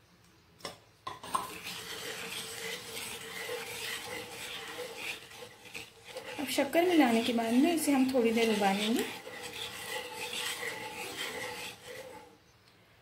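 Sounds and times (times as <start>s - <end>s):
spatula scraping pan bottom: 1.1s - 12.4s.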